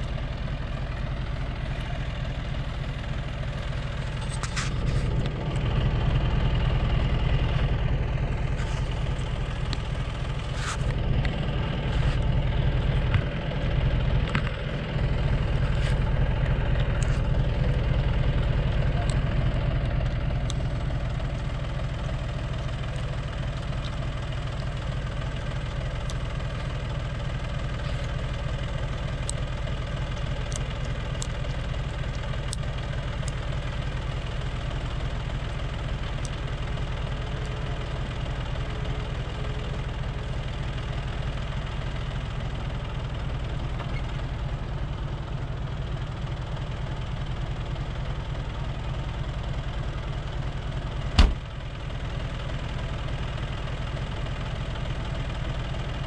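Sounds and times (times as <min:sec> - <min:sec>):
tractor engine idling: 0:00.0 - 0:56.0
sharp knock: 0:51.2 - 0:51.4.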